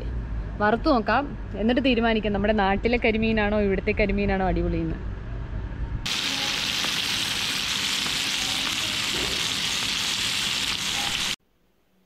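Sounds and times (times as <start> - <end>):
fish sizzling in oil: 6.1 - 11.4.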